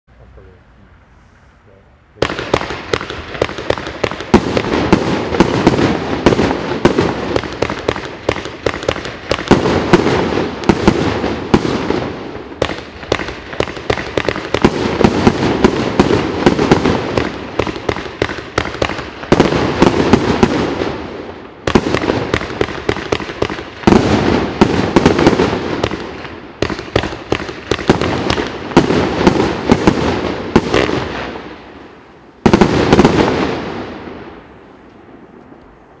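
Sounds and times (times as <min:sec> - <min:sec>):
cake firework shots firing: 0:02.2 - 0:20.8, 0:21.7 - 0:31.2.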